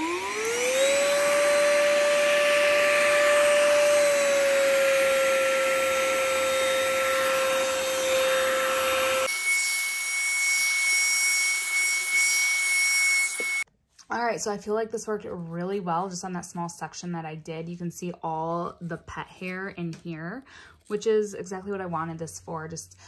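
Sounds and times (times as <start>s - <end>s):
handheld vacuum motor whine: 0.0s - 13.7s.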